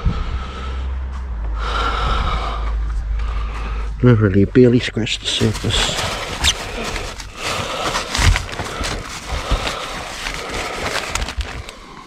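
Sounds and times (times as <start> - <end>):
rustling and crinkling packaging: 5.2 - 12.0.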